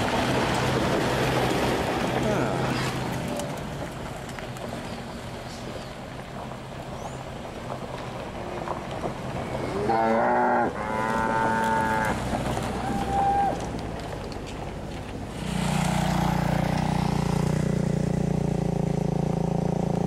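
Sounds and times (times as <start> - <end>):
bike rolling over gravel: 0.0 - 17.0.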